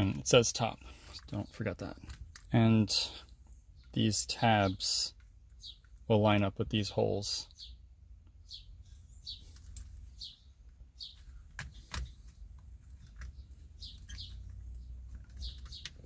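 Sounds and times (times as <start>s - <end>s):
small bird chirping: 2.9s - 6.1s, 7.4s - 16.0s.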